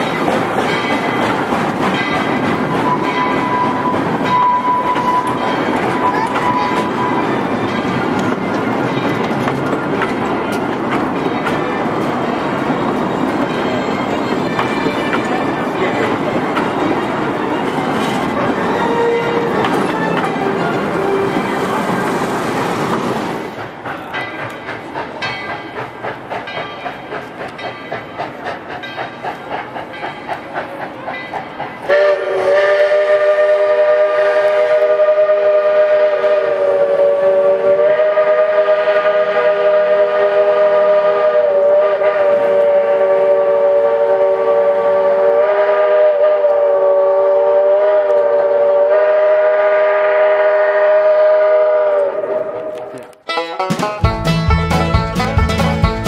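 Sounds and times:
steam locomotive chugging: 0.0s - 56.0s
steam whistle chord: 2.8s - 7.4s, 31.9s - 56.0s.

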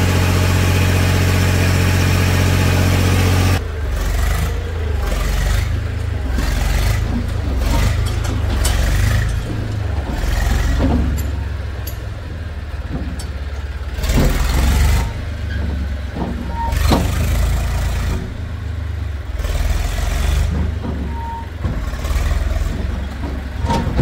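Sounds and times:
diesel engine running: 0.0s - 24.0s.

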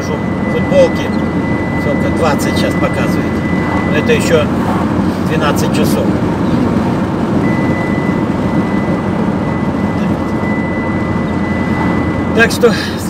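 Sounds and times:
car road and engine rumble: 0.0s - 13.0s.

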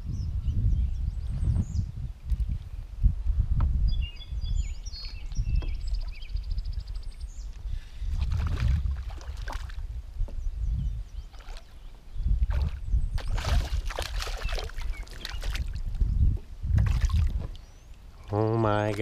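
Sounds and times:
fish splashing at water surface: 12.5s - 15.7s.

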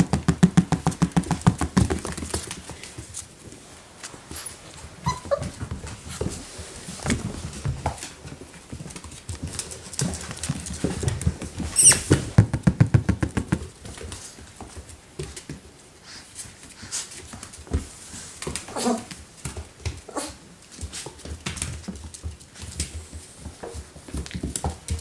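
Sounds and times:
puppy paws pattering on wooden floor: 0.0s - 25.0s
puppy whimper: 4.4s - 5.6s.

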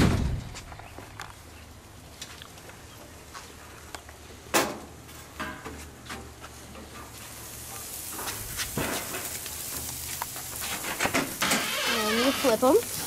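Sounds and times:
steaks sizzling on a grill: 6.5s - 13.0s.

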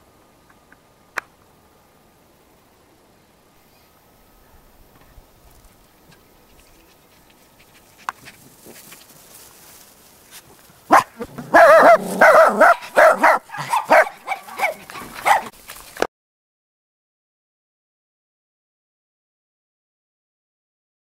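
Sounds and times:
puppies barking: 10.9s - 15.6s.

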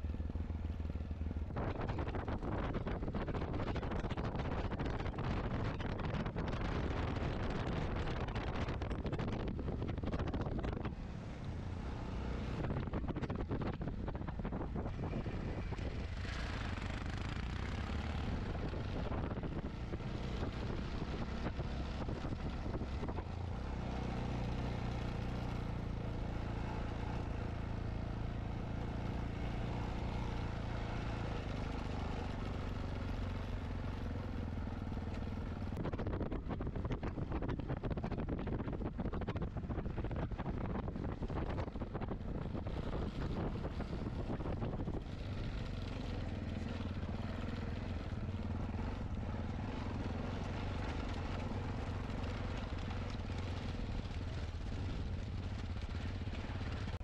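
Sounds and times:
motorcycle engine running: 0.0s - 57.0s
wind buffeting microphone: 1.5s - 11.0s, 12.5s - 17.3s, 35.6s - 45.6s.

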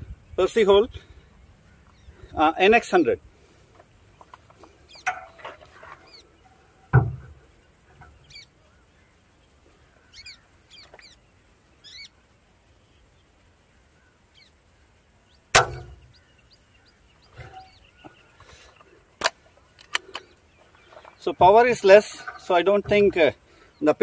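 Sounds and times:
birds chirping: 0.0s - 24.0s
dull thump: 6.9s - 7.4s, 15.6s - 16.1s
air rifle shot: 15.5s - 16.0s.

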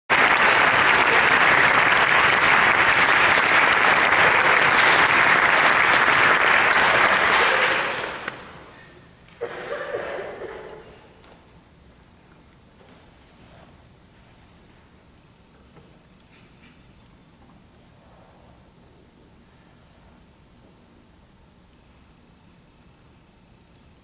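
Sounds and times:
audience applauding: 0.1s - 10.0s.

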